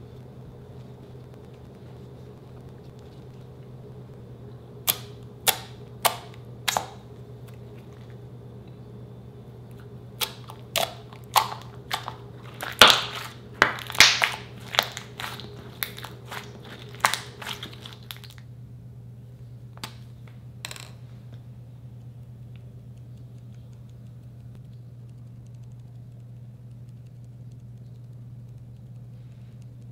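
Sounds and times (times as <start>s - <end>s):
slime squelchy pops: 4.9s - 7.0s, 10.2s - 18.4s.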